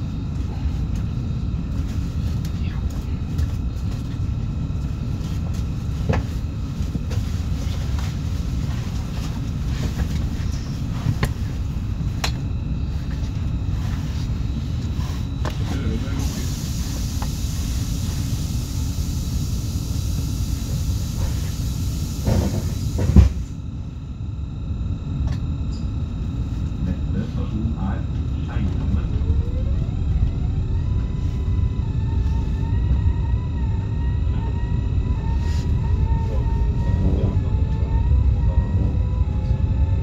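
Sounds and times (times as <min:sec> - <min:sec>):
train running gear rumble: 0:00.0 - 0:24.1, 0:25.2 - 0:40.0
hiss: 0:16.2 - 0:23.3.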